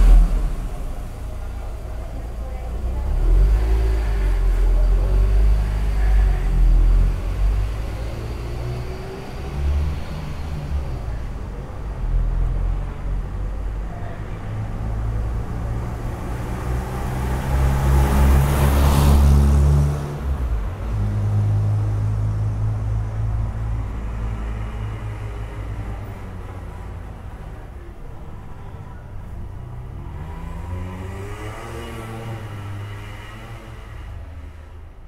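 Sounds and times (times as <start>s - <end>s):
car passing close by: 0.0s - 10.9s, 14.9s - 26.4s
low traffic rumble: 0.0s - 35.0s.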